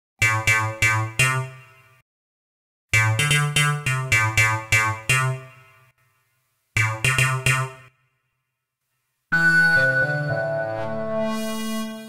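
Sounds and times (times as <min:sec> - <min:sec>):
bright percussive synthesizer notes: 0:00.2 - 0:02.0, 0:03.0 - 0:06.1, 0:06.8 - 0:08.1.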